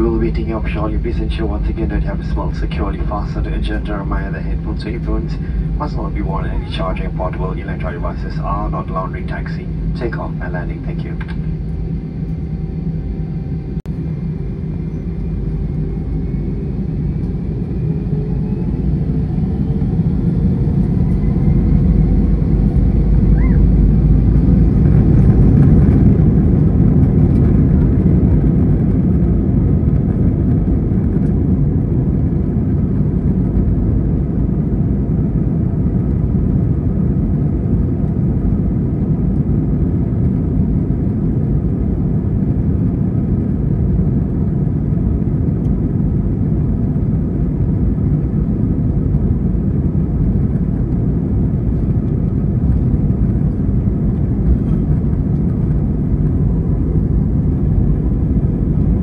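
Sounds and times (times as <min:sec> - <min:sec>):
jet engines spooling up: 0:00.0 - 0:34.9
rising engine whine: 0:00.0 - 0:59.0
wheels rumbling on runway: 0:00.0 - 0:59.0.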